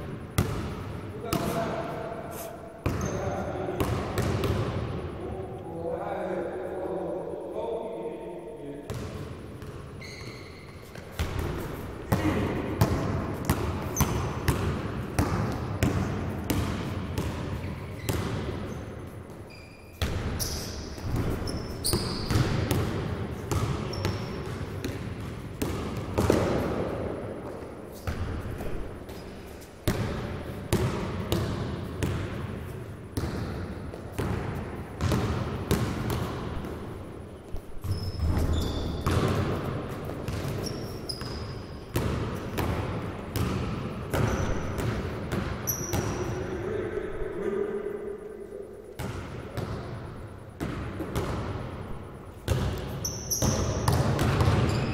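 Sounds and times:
basketballs bouncing on gym floor: 0.0s - 1.8s, 2.8s - 5.0s, 8.9s - 37.0s, 37.6s - 46.4s, 49.0s - 51.8s, 52.4s - 54.9s
shoe squeaks: 2.3s - 3.4s, 9.9s - 11.9s, 17.6s - 22.5s, 23.8s - 24.5s, 37.7s - 39.2s, 40.3s - 41.9s, 44.2s - 44.8s, 45.6s - 46.3s, 52.9s - 53.9s, 54.6s - 54.9s.

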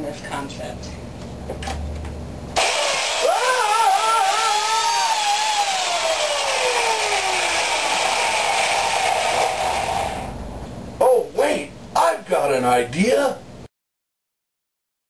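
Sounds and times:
man screaming: 2.6s - 9.7s
chainsaw running: 2.6s - 10.3s.

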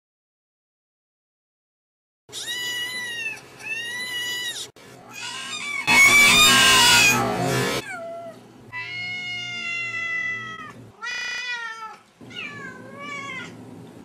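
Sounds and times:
kitten meows: 2.3s - 7.2s
cat meowing: 2.3s - 13.6s.

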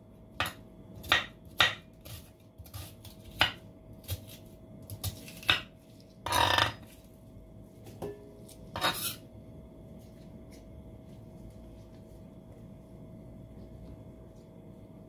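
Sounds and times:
knife scraping board: 6.2s - 7.0s, 8.5s - 9.2s.

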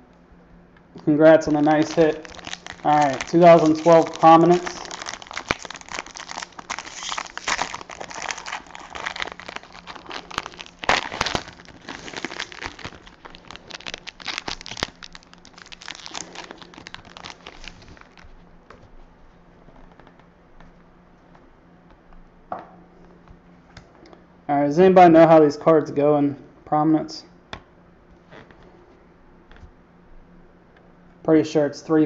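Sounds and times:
foil wrapper crinkling: 1.4s - 18.5s.

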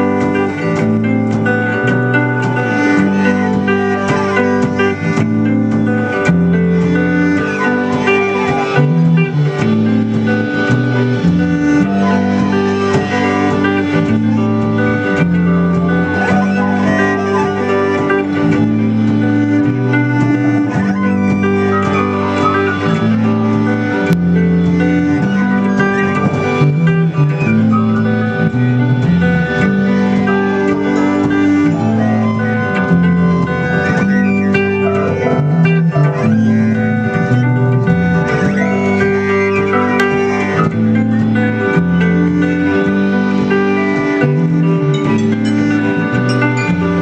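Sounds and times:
archtop guitar strummed and picked: 0.0s - 47.0s
held instrument notes: 0.0s - 47.0s
live band playing: 0.0s - 47.0s.

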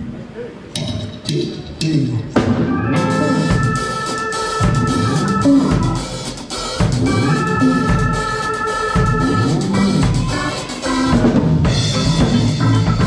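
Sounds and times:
keyboard chords: 0.7s - 13.0s
electric bass: 0.8s - 6.1s, 6.8s - 8.2s, 8.9s - 13.0s
drum kit: 0.8s - 13.0s.

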